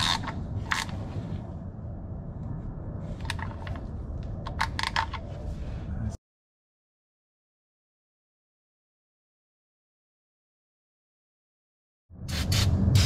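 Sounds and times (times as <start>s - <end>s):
steady low hum: 0.0s - 6.2s.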